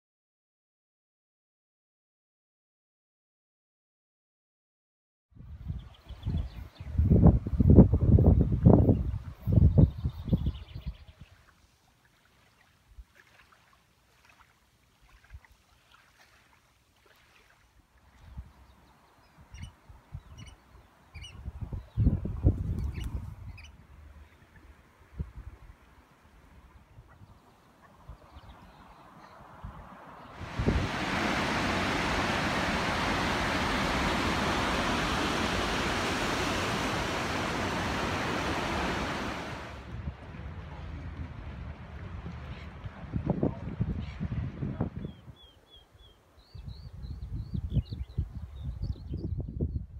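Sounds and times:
small waves lapping on gravel: 0:12.0 - 0:17.8
river rapids rushing: 0:30.4 - 0:39.8.

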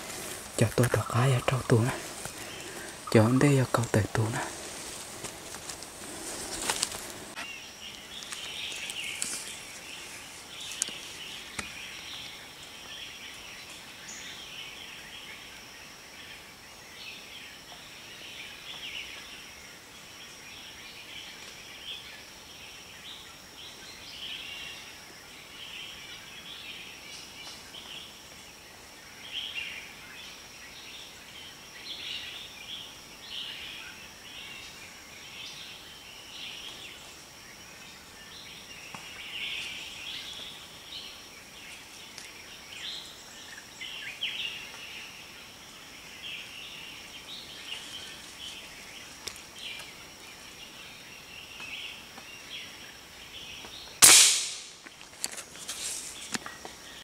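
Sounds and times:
birds calling: 0:00.0 - 0:15.5
high insect whine: 0:00.0 - 0:57.0
air rifle shot: 0:54.0 - 0:54.8.

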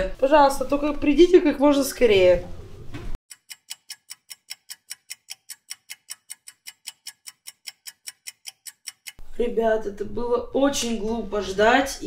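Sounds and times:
fast clock ticking: 0:03.3 - 0:09.2.

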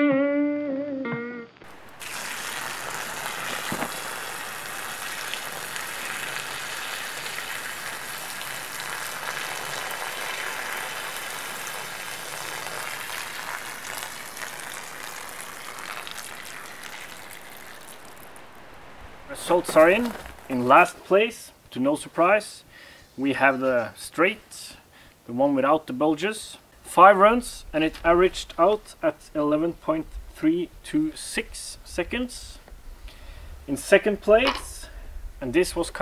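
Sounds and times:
water splashing onto gravel: 0:01.7 - 0:21.0.

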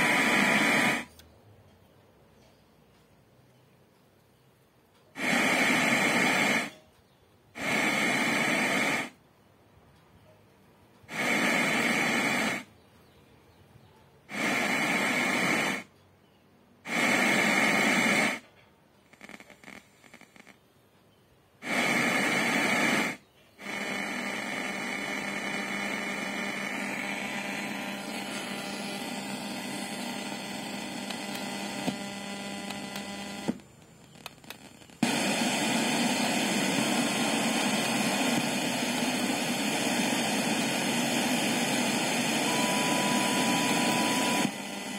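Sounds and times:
radio static hiss: 0:00.0 - 0:01.2, 0:05.0 - 0:06.8, 0:07.6 - 0:09.2, 0:11.0 - 0:12.8, 0:14.3 - 0:15.9, 0:16.8 - 0:20.6, 0:21.6 - 0:44.9
faint hum: 0:00.0 - 0:44.9.

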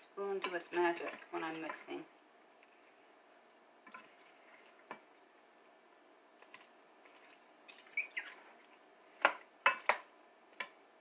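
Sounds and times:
wooden spoon stirring stew: 0:00.2 - 0:05.2, 0:06.3 - 0:10.8
short high squeaks: 0:07.7 - 0:08.4.

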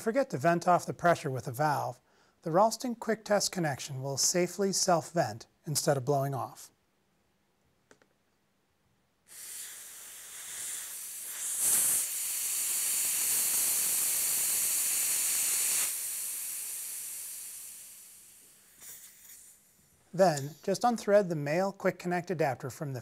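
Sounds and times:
pressure hissing out of hose: 0:09.3 - 0:20.5.

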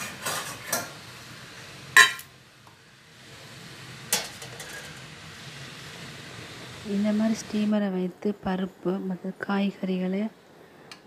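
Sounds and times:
metal bowl clanking into steel tray: 0:00.0 - 0:00.9, 0:02.0 - 0:02.3.

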